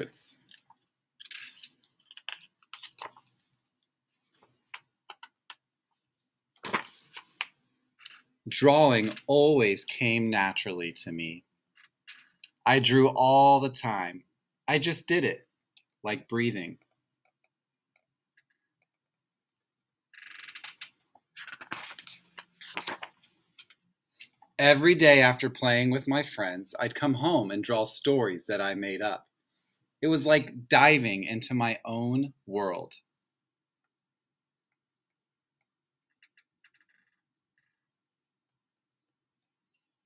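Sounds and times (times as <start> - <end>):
book pages turning: 0.4 - 5.6, 6.6 - 8.2, 20.5 - 23.4.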